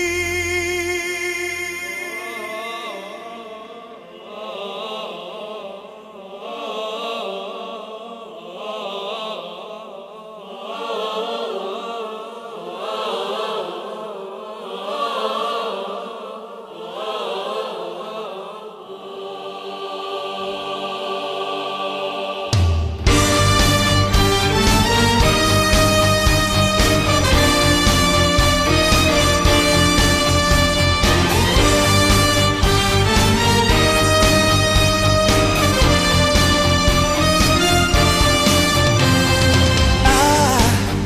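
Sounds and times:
choir singing long notes: 0:00.0 - 0:41.0
orchestra playing: 0:23.1 - 0:41.0.

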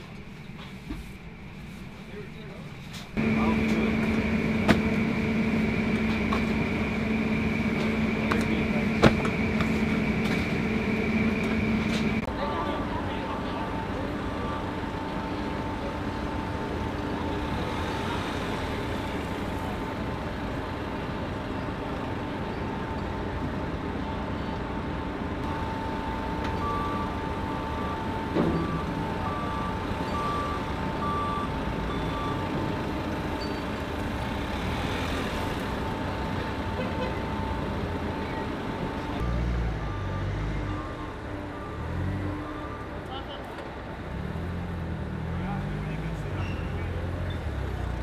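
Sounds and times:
reversing alarm beeping: 0:03.2 - 0:12.3, 0:25.4 - 0:33.9, 0:34.6 - 0:43.0
steady high tone: 0:03.2 - 0:16.4, 0:25.4 - 0:32.4
forklift engine running: 0:03.2 - 0:45.4.

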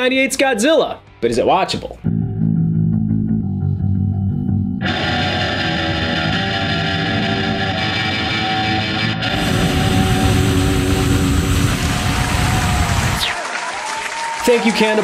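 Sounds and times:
rock music: 0:01.0 - 0:13.3
distorted electric guitar riff: 0:02.0 - 0:13.3.

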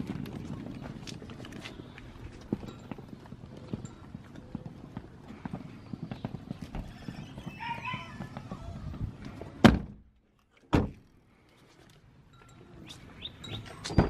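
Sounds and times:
suitcase wheels clattering on pavers: 0:00.0 - 0:09.8.

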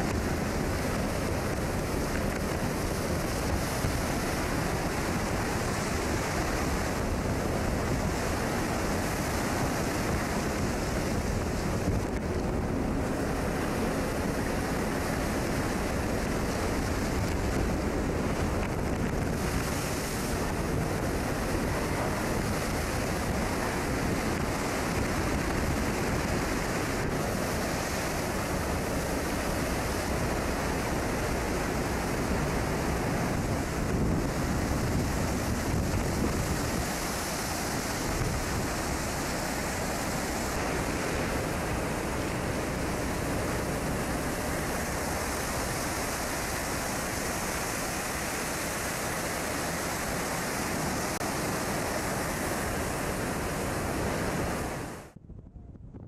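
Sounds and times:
waves breaking over ship deck: 0:00.0 - 0:55.2
wind on microphone: 0:00.0 - 0:56.0.

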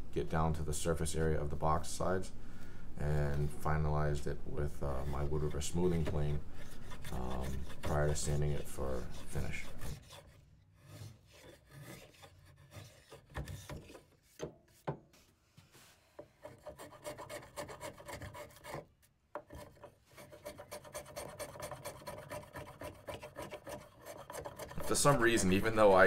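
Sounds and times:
hand plane scraping wood: 0:04.9 - 0:14.8, 0:16.0 - 0:26.0.

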